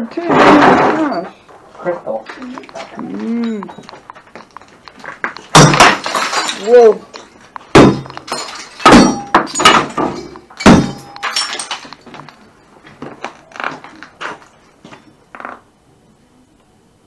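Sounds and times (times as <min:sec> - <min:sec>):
broken pieces clinking and rattling: 0:03.7 - 0:12.5
hammer smashing debris: 0:05.5 - 0:12.0.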